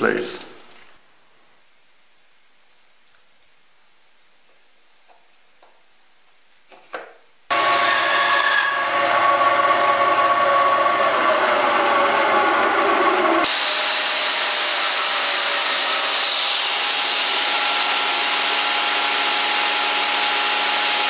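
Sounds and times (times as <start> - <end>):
bandsaw cutting wood: 7.5 - 21.0.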